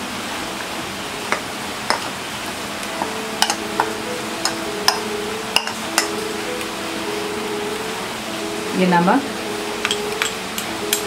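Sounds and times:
steady hiss: 0.0 - 11.0
spoon clicking against bowls: 9.8 - 11.0.

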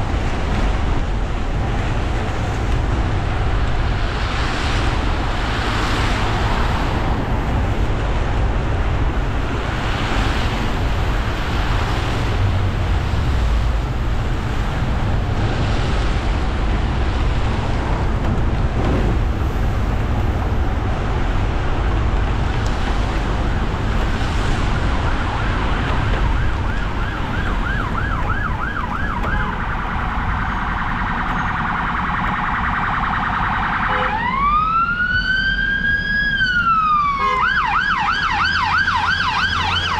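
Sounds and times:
tyres on wet road: 0.0 - 39.9
emergency siren: 20.4 - 39.9.

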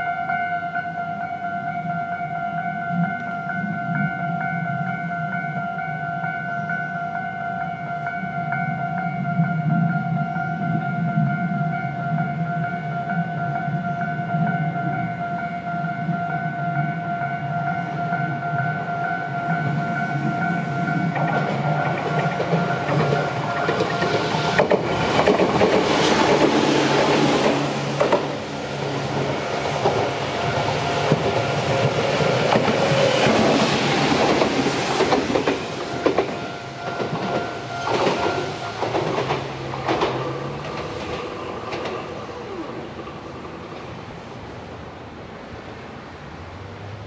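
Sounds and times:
level-crossing electronic bell: 0.0 - 24.6, 35.3 - 39.4
train wheels clacking on rails: 17.8 - 43.9.

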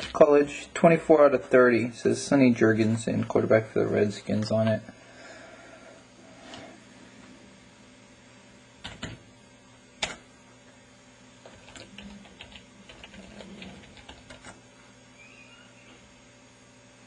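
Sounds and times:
typing on a computer keyboard: 11.5 - 14.6.

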